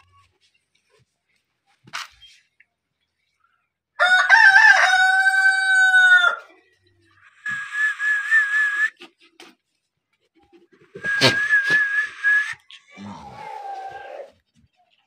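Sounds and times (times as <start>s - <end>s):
rooster crowing: 4.0s - 6.5s.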